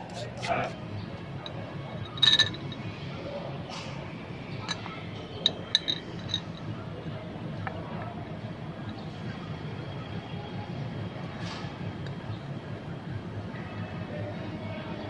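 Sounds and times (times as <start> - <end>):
metallic clinks of bolts: 1.4 - 2.9, 4.6 - 6.7.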